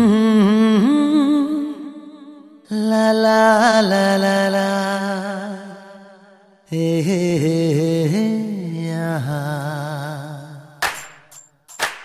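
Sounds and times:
sharp percussion hit: 10.8 - 12.0.

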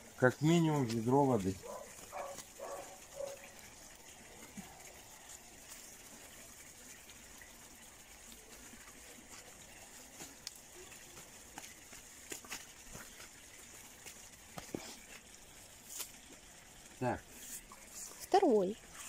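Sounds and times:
rustling of stiff leaves: 0.0 - 19.0
hands working soil: 0.6 - 3.5, 8.2 - 16.5, 17.2 - 19.0.

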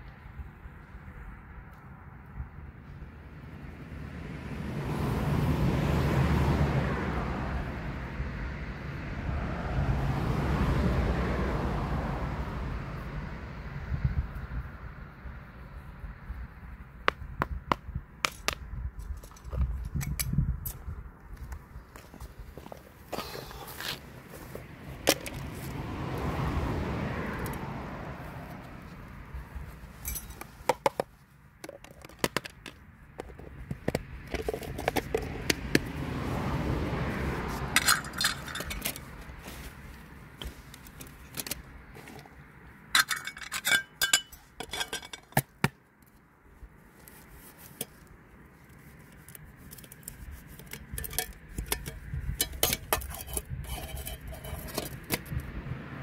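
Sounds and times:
metal pots clinking: 37.8 - 39.0, 43.0 - 45.3, 50.9 - 55.0.

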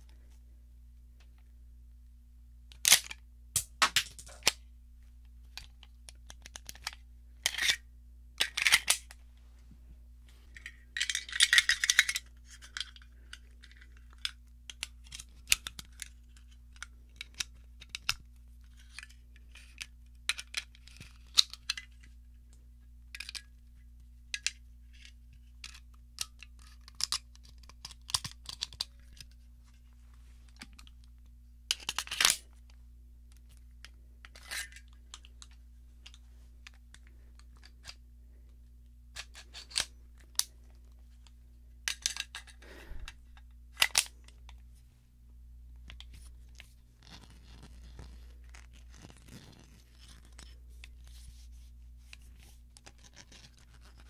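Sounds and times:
pistol metallic clicks and rattles: 10.6 - 13.0.

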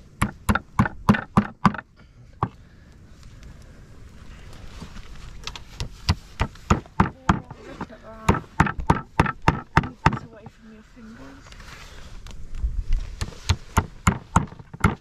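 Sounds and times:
hammering nails into wood: 0.2 - 2.5, 5.8 - 7.6, 8.2 - 10.3, 13.2 - 15.0.

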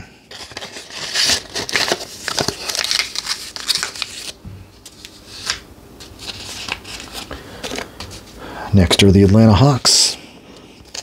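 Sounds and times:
paper cards rustling and scraping: 0.3 - 8.4, 10.5 - 11.0.

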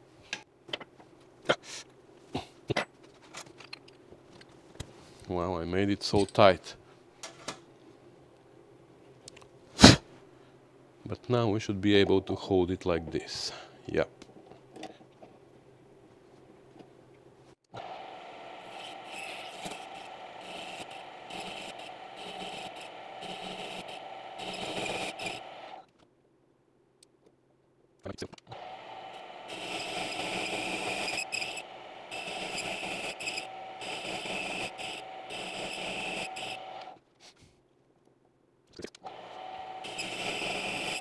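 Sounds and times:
lathe motor whine: 17.8 - 25.8, 28.5 - 37.0, 39.1 - 41.0
cutting tool scraping metal: 18.6 - 25.7, 28.6 - 36.9, 39.1 - 41.0.

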